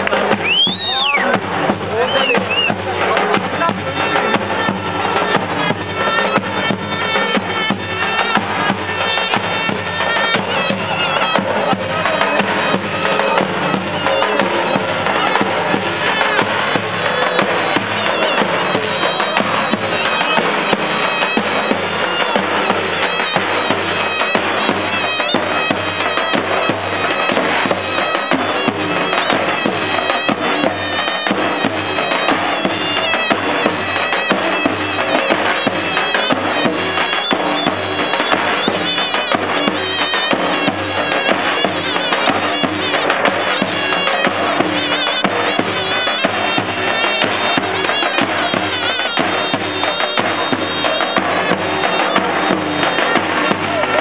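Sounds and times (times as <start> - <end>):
bass drum beats: 0.0 - 23.8
shrill reedy shawm melody: 0.0 - 54.0.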